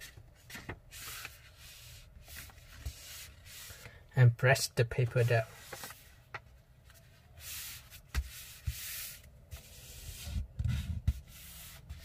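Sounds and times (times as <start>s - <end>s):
paper rustling: 5.2s - 6.1s.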